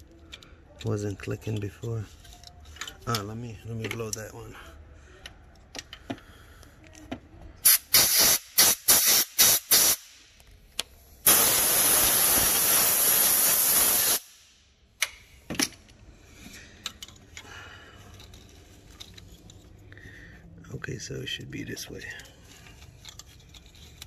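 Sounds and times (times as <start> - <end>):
compressed air blow gun blasts: 7.6 - 10.2, 11.2 - 14.5.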